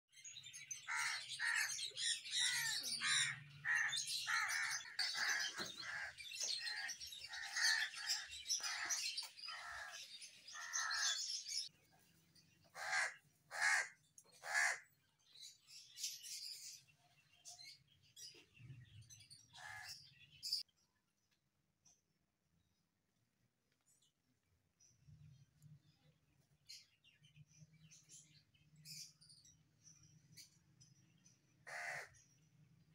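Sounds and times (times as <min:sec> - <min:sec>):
small birds chirping: 0:00.1 - 0:32.9
crows cawing: 0:00.9 - 0:11.3, 0:12.7 - 0:14.8, 0:19.6 - 0:20.0, 0:31.6 - 0:32.2.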